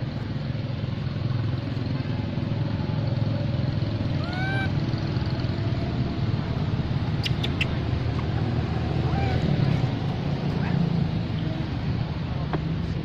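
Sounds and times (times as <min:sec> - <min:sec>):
macaque squealing call: 0:04.1 - 0:04.8, 0:07.1 - 0:07.8, 0:08.9 - 0:09.7.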